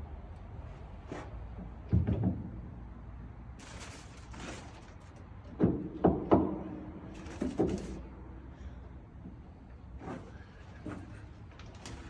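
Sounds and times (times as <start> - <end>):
packing wrap rustling: 3.6 - 5.2.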